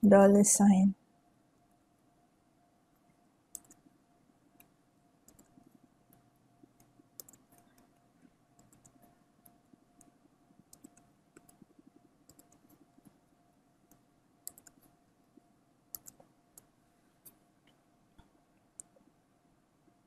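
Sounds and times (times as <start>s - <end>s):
faint steady hum: 0.0s - 20.0s
computer keyboard keystrokes: 3.5s - 3.8s, 5.3s - 6.2s, 6.8s - 7.9s, 8.6s - 10.1s, 10.7s - 11.7s, 12.3s - 12.8s, 13.9s - 14.9s, 15.9s - 17.4s.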